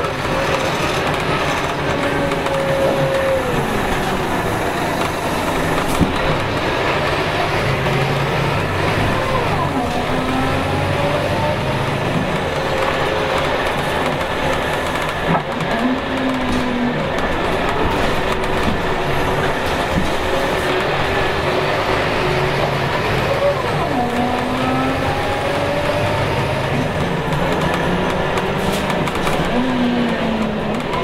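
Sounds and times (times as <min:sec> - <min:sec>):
bus diesel engine driving: 0:00.0 - 0:31.0.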